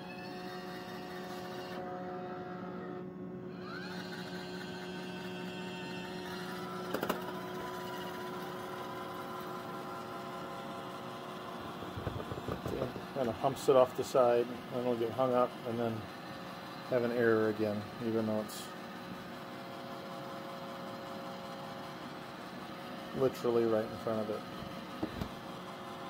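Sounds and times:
robot vacuum motors humming: 0:00.0 - 0:26.0.

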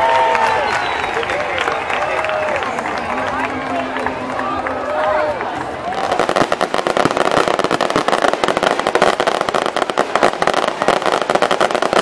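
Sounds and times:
fireworks crackling pops: 0:05.9 - 0:12.0.

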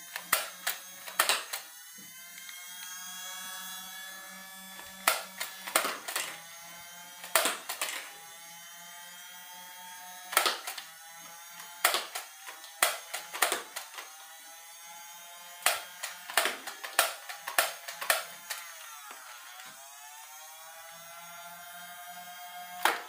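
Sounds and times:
toy blaster flywheel whirring: 0:00.0 - 0:23.0
sharp clacks of darts: 0:00.2 - 0:01.6, 0:05.0 - 0:06.3, 0:07.2 - 0:08.0, 0:10.3 - 0:10.8, 0:11.8 - 0:14.0, 0:15.6 - 0:18.6, 0:22.8 - 0:23.0.

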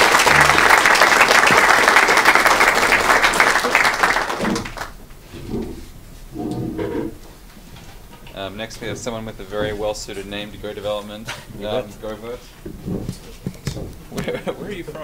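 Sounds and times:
murmured voices: 0:00.0 - 0:01.7
audience applauding: 0:00.0 - 0:05.0.

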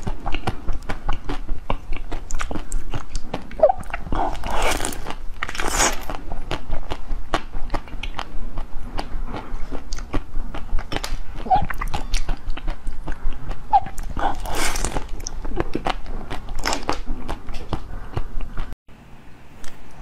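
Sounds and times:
chewing jelly dessert: 0:00.0 - 0:18.8.

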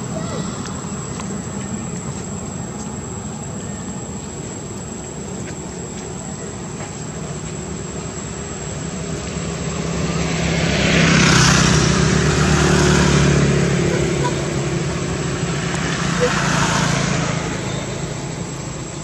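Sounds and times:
passing vehicle engine: 0:08.6 - 0:19.0.

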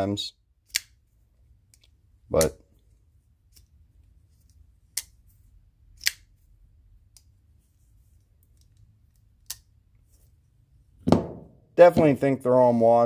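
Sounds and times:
folding knife clicking: 0:00.7 - 0:01.0, 0:06.0 - 0:06.3.

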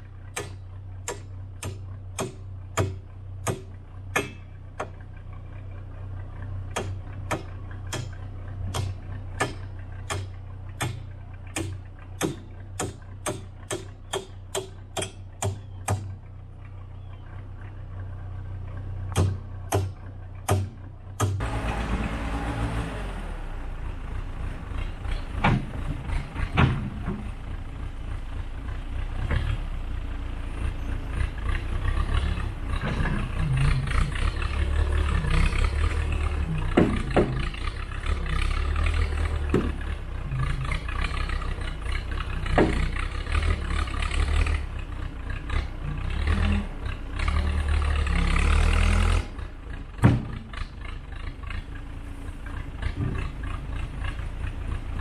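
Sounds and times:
backhoe engine running under load: 0:00.0 - 0:55.0
sharp knocks: 0:00.4 - 0:05.0, 0:06.7 - 0:16.1, 0:19.1 - 0:21.4.

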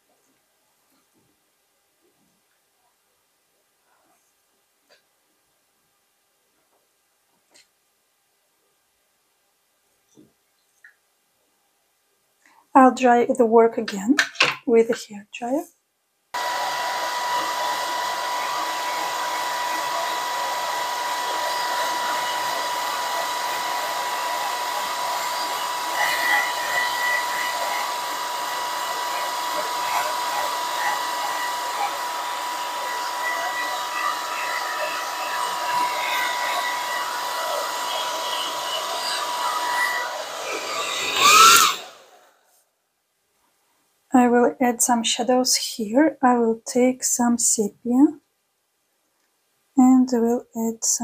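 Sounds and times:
hair dryer running: 0:16.4 - 0:42.3.

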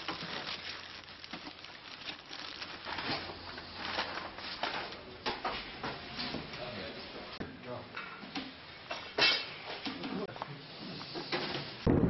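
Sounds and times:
plastic bags rustling: 0:00.0 - 0:04.9.

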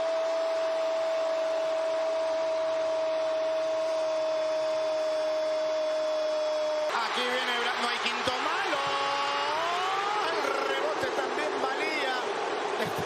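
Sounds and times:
stadium crowd noise: 0:00.0 - 0:13.0
commentator shouting: 0:06.9 - 0:13.0.

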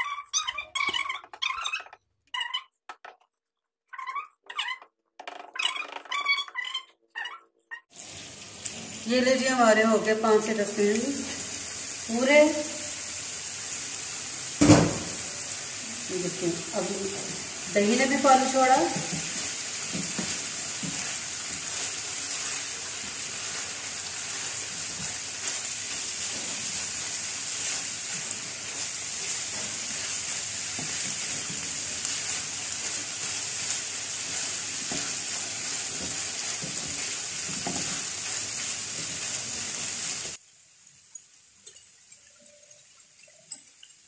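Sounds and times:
meat sizzling in a pan: 0:07.9 - 0:44.0
spatula stirring in a pan: 0:16.7 - 0:40.4.

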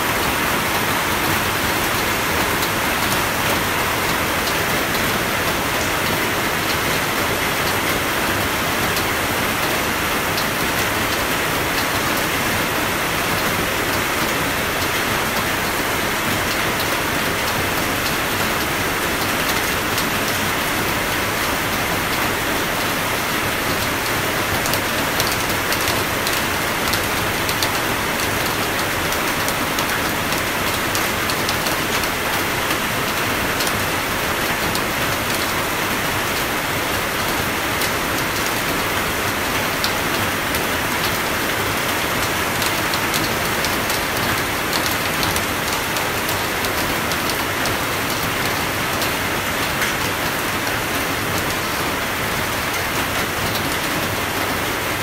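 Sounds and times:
steady rainfall: 0:00.0 - 0:55.0.

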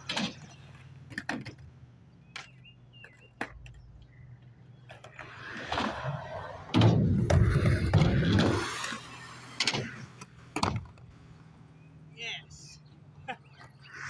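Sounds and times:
skateboard clacks: 0:00.0 - 0:11.1
skateboard wheels rumbling on concrete: 0:00.0 - 0:12.1.

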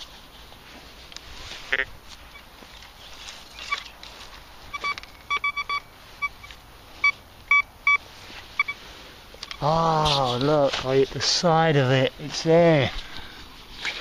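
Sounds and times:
metal detector beeps: 0:03.6 - 0:04.0, 0:04.7 - 0:08.0, 0:08.6 - 0:08.8.

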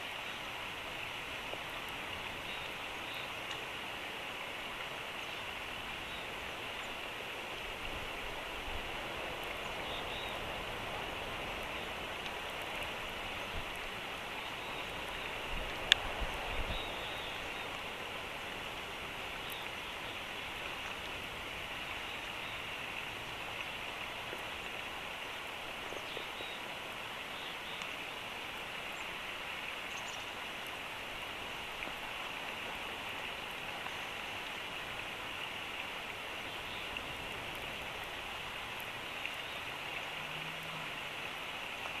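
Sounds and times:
outdoor ambience hiss: 0:00.0 - 0:42.0
faint ticks: 0:15.7 - 0:16.1.

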